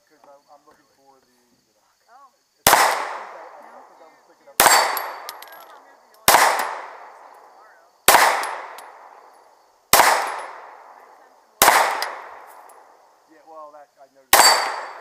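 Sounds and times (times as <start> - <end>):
pistol shots with echo: 2.6 - 3.9, 4.6 - 9.3, 9.9 - 13.0, 14.3 - 15.0.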